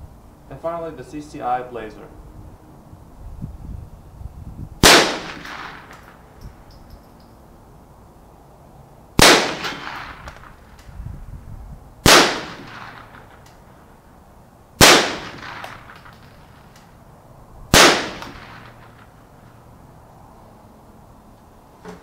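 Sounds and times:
rifle shots: 4.8s - 6.3s, 9.2s - 10.7s, 12.0s - 13.5s, 14.8s - 16.7s, 17.7s - 19.2s.

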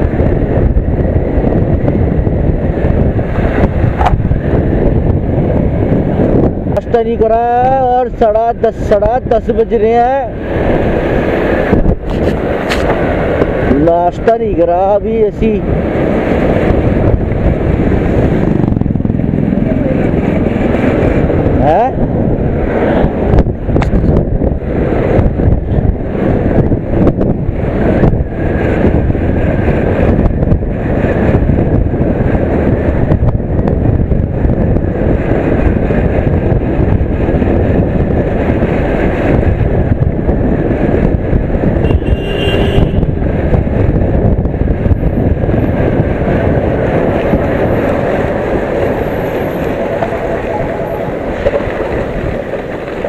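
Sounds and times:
wind on microphone: 0.0s - 53.0s
scooter engine running: 17.3s - 21.4s.

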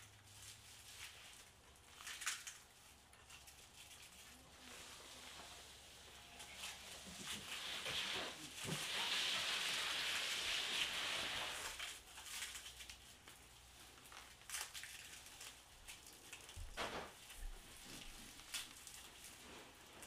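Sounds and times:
hiss-like rustle: 4.6s - 12.0s.

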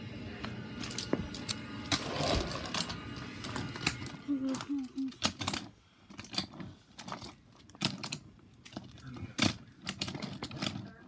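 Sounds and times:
toy trains clicking on wooden track: 3.5s - 11.0s.

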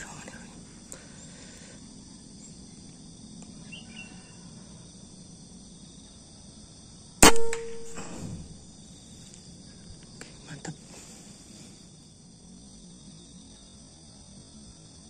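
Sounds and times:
air rifle shot crack: 7.2s - 8.6s
low thud: 7.2s - 8.7s.

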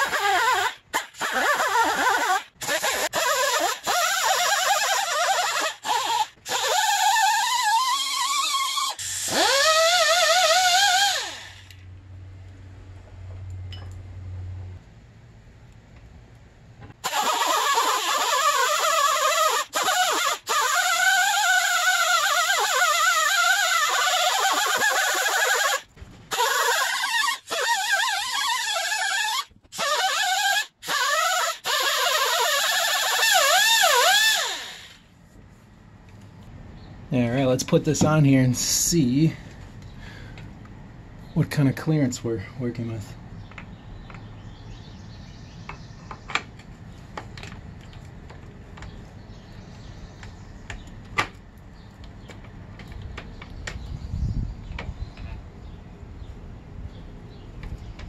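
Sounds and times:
rotary tool grinding metal: 0.0s - 11.8s, 17.0s - 35.0s.

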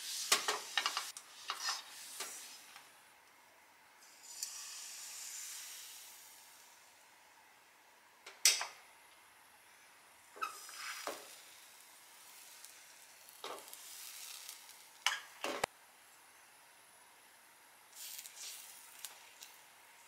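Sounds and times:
batter sizzling in frying pan: 0.0s - 2.8s, 4.0s - 6.9s, 10.2s - 15.5s, 17.9s - 20.0s.

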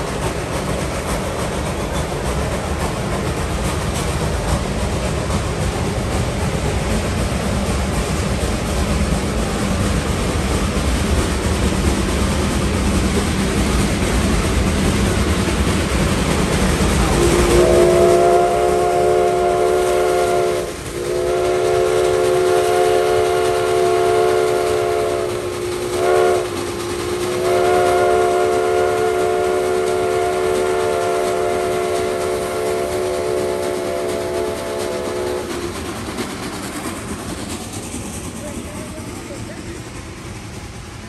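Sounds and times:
running train noise: 0.0s - 41.0s
steam locomotive chime whistle: 17.0s - 35.6s.

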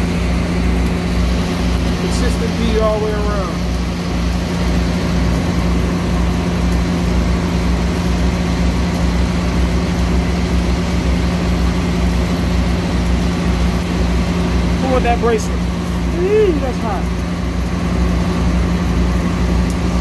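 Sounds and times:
welding machine engine humming: 0.0s - 20.0s.

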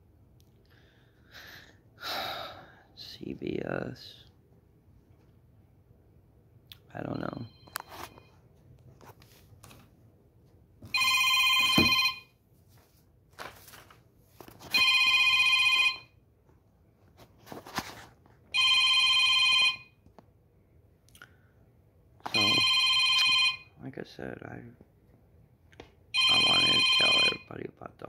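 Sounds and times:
telephone ringing: 7.1s - 8.4s, 10.8s - 12.4s, 14.7s - 16.2s, 18.5s - 20.0s, 22.3s - 23.8s, 26.1s - 27.5s.

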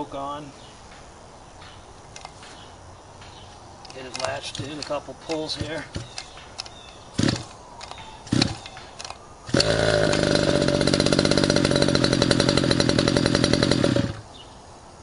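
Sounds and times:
engine pull-start: 3.9s - 14.2s
small two-stroke engine running: 5.5s - 6.2s, 7.2s - 7.5s, 8.3s - 8.7s, 9.5s - 14.3s.

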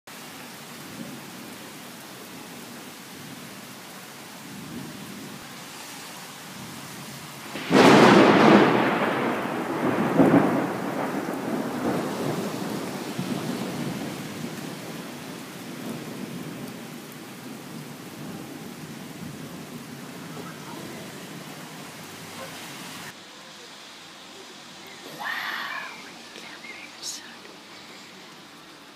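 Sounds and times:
steady rain: 0.1s - 28.9s
thunderclap rolling into rumbling: 7.5s - 21.9s.

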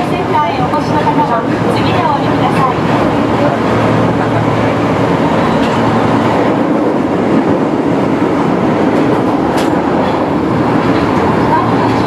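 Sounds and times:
subway train wheels rumbling: 0.0s - 12.0s.

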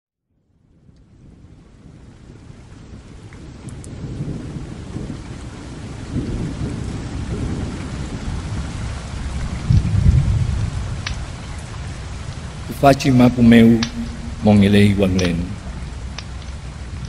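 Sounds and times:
steady rain: 0.4s - 17.0s
rolling thunder: 1.3s - 11.0s, 11.8s - 14.7s.

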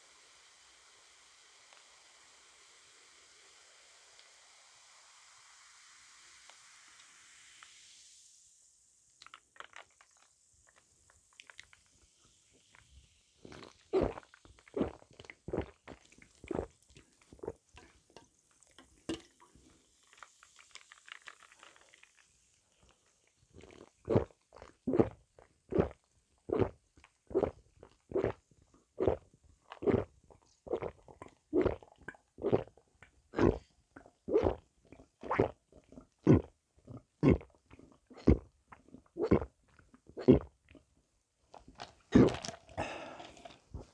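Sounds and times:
faint fizzing hiss: 0.0s - 24.8s
gulping swallows from a cup: 12.7s - 18.1s, 20.0s - 40.9s, 41.5s - 43.9s.

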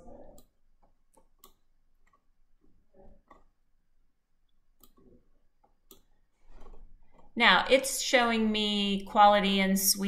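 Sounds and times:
computer mouse clicks: 0.0s - 2.3s, 4.8s - 7.3s.

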